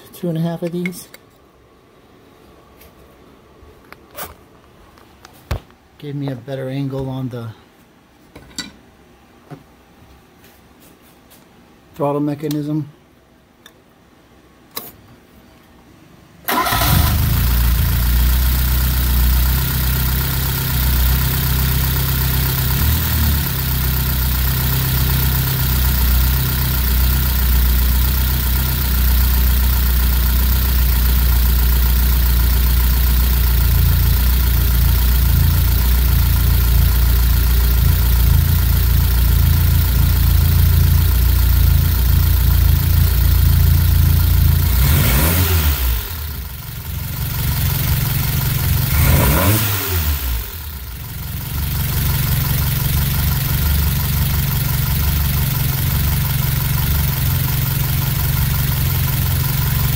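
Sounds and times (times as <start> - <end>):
car engine idling: 16.5 - 59.9.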